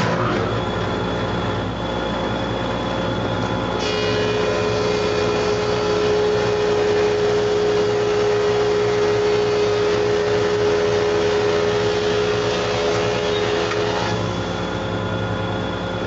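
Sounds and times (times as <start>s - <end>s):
thickness planer cutting wood: 3.8s - 14.4s.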